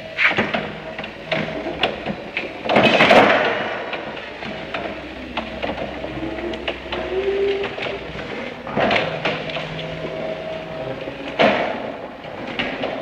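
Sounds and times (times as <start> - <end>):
forklift whine: 3.8 - 13.0.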